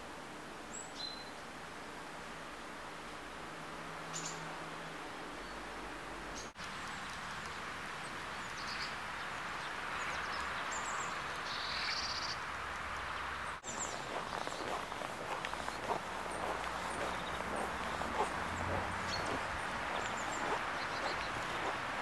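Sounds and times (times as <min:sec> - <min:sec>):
steady background hiss: 0:00.0 - 0:22.0
small birds chirping: 0:08.3 - 0:12.4, 0:13.2 - 0:22.0.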